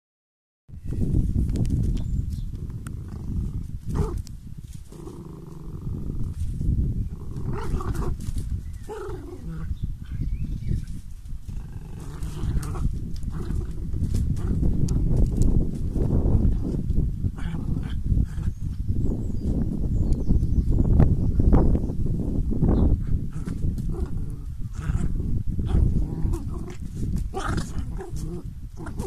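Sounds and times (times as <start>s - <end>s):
small dogs growling and snarling: 4.8s - 6.5s, 7.1s - 10.2s, 11.4s - 15.0s, 16.5s - 18.6s, 23.1s - 29.0s.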